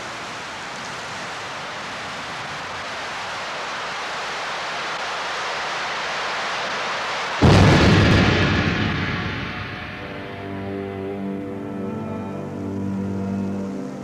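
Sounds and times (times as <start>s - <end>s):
steady hiss of noise: 0.0s - 14.0s.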